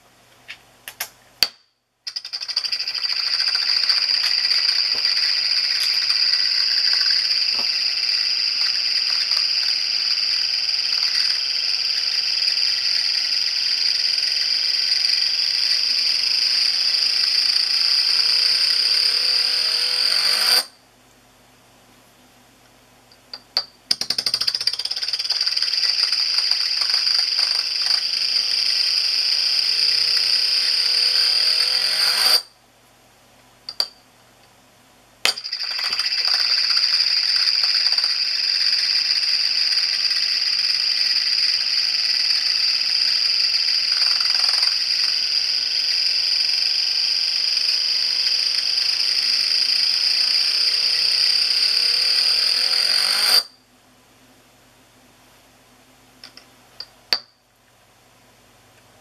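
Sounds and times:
spinning disc ringing whir: 0:02.1 - 0:20.8, 0:24.4 - 0:32.5, 0:35.4 - 0:53.6.

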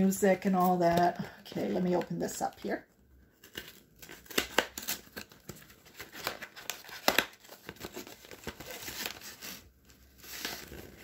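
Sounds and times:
packaging tearing and crinkling: 0:03.4 - 0:11.0.

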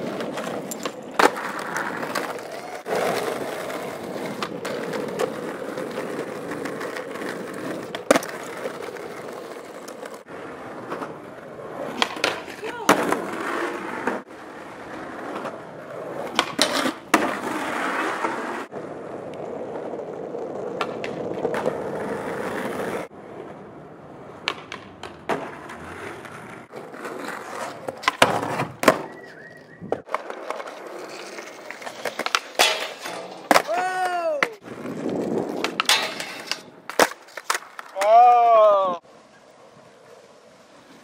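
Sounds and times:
skateboard clacks: 0:00.0 - 0:23.6, 0:24.2 - 0:38.6
skateboard wheels rolling on asphalt: 0:00.0 - 0:41.0.

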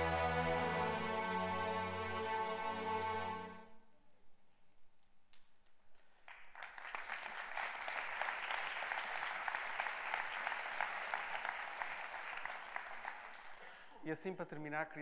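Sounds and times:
audience applauding: 0:06.2 - 0:13.9.

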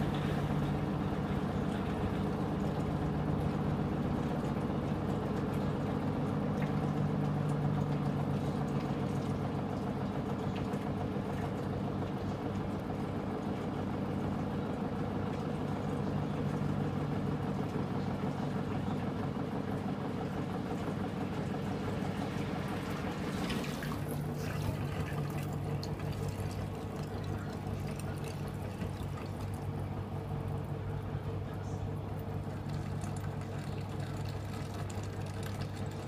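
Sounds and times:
drain hose gushing water into sink: 0:00.0 - 0:13.3, 0:20.5 - 0:36.0
washing machine drum spinning: 0:00.0 - 0:36.0.

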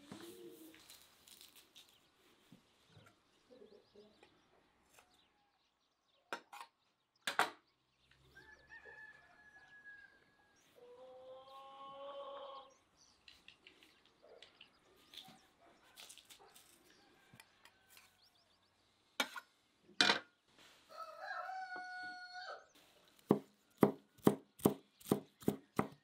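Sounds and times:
rooster crowing: 0:08.4 - 0:10.5, 0:20.9 - 0:22.7.

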